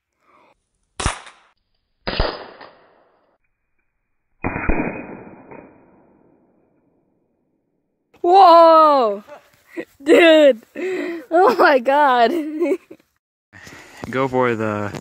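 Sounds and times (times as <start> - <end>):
slowed pellet rifle shot: 1.0 - 3.4, 4.3 - 6.8.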